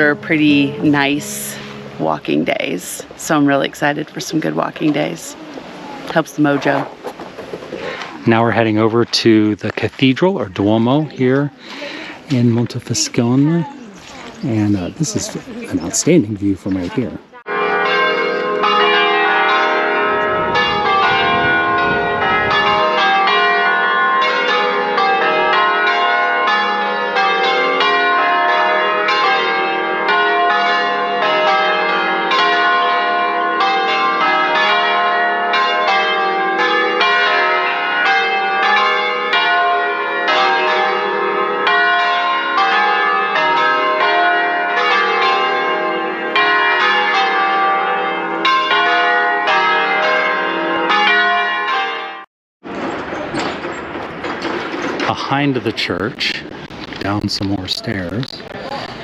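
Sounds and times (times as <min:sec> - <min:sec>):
church bells pealing: 0:00.0 - 0:06.9, 0:08.2 - 0:59.0.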